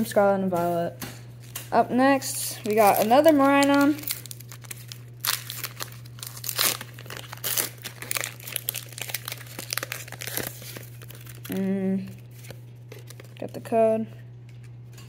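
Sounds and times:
foil wrapper crinkling and tearing: 2.4s - 13.7s.

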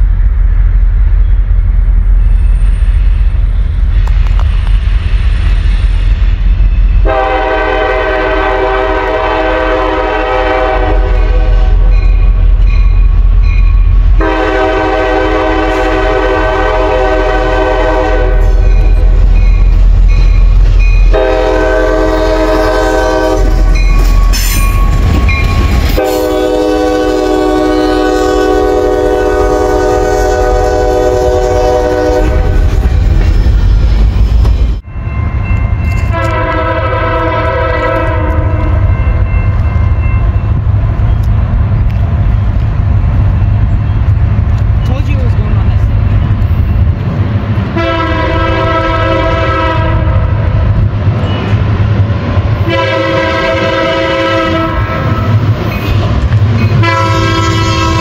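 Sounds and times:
low rumble of trains: 0.0s - 58.0s
train horns blowing: 6.9s - 12.1s, 14.1s - 19.4s, 21.1s - 32.9s, 35.9s - 40.1s, 47.7s - 50.6s, 52.6s - 58.0s.

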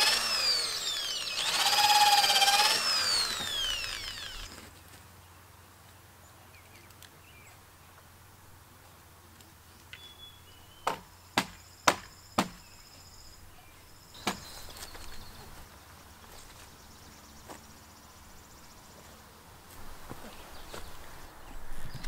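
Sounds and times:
high chirping birds or insects: 0.0s - 4.5s, 9.7s - 19.4s
hammer striking wooden frame: 10.9s - 12.6s.

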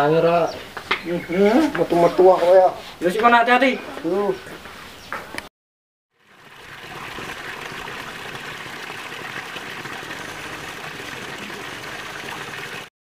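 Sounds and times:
waterfall splashing over rocks: 7.0s - 12.9s.

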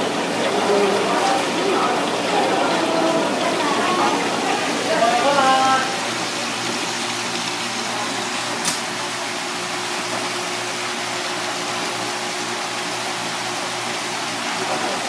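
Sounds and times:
water rushing from hose: 0.0s - 15.0s
sharp click: 8.6s - 8.8s.

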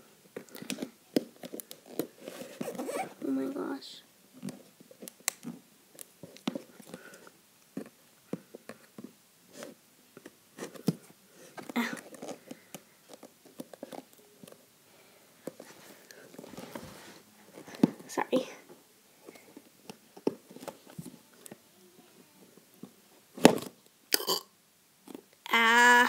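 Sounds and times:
hands handling cardboard: 19.2s - 21.6s.

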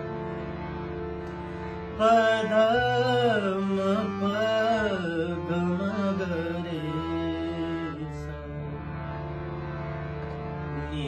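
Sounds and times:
harmonium sustained chord: 0.0s - 11.0s
man singing wordless melody: 1.9s - 9.1s, 10.7s - 11.0s.

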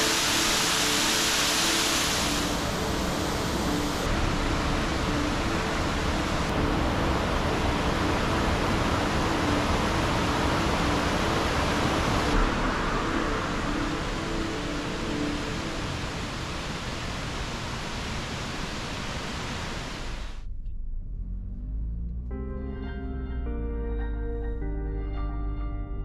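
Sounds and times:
waterfall and stream rushing: 0.0s - 20.2s.

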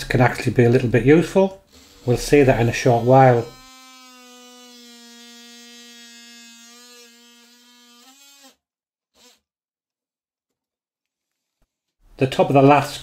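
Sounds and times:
oscillating multi-tool cutting wood: 1.6s - 9.4s.

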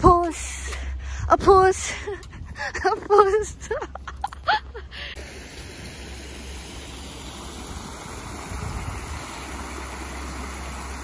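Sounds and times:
waterfall rushing: 5.2s - 11.0s.

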